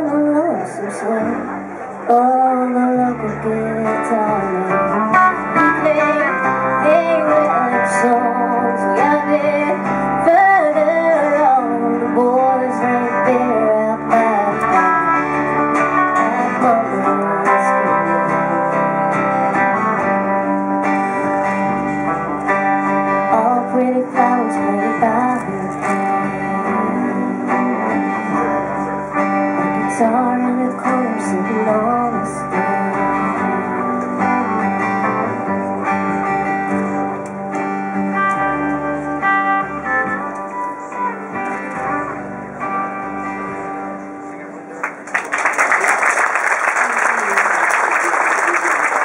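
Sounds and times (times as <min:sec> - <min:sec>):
woman singing into a microphone: 0:00.0 - 0:15.4, 0:16.0 - 0:19.2, 0:23.1 - 0:28.4, 0:29.6 - 0:34.5
guitar: 0:00.0 - 0:49.0.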